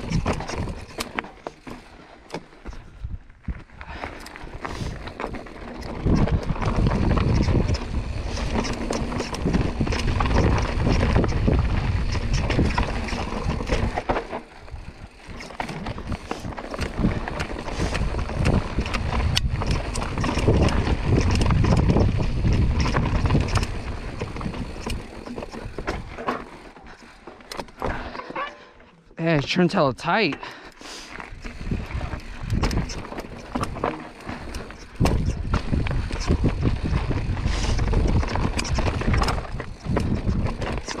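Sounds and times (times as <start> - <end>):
tyres crunching over dirt and rock: 0.0 - 28.6, 31.1 - 41.0
bike chain and frame rattling: 0.0 - 28.8, 30.4 - 41.0
wind buffeting microphone: 5.8 - 14.0, 14.7 - 26.2, 31.3 - 41.0.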